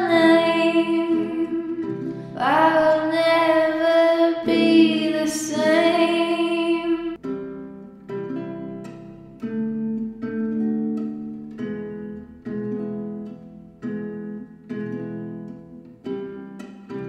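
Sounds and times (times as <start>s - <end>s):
woman singing: 0.0s - 7.2s
acoustic guitar: 0.0s - 17.0s.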